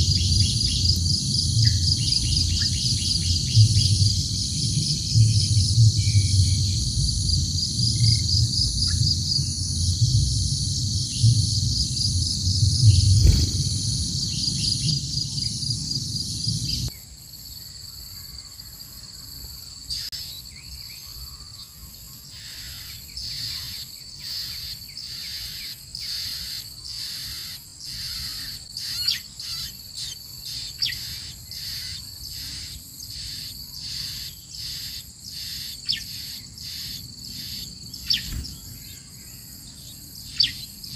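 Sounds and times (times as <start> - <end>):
insect trilling: 0.0 - 16.9, 21.1 - 40.9
low rumble: 0.0 - 16.9.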